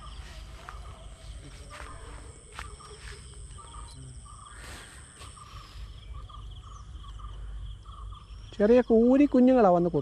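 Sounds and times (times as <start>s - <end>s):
high-pitched whine: 0.0s - 7.4s
birds chirping: 0.0s - 10.0s.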